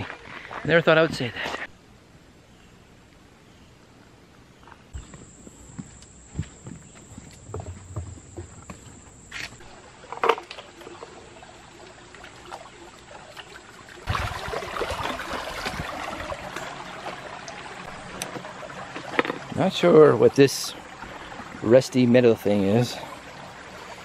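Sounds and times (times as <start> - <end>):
knocks and thumps: 5.0 - 9.1
water trickling over rocks: 9.1 - 24.0.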